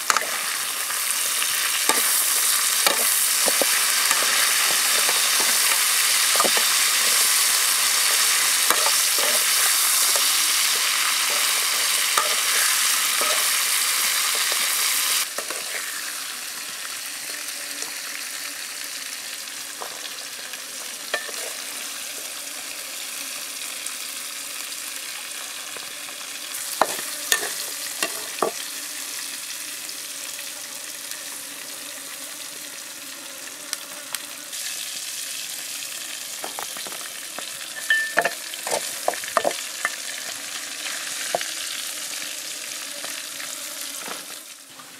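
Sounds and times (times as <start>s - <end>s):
food sizzling in a wok: 0.0s - 44.9s
spatula clacking: 1.8s - 14.7s, 26.8s - 28.5s.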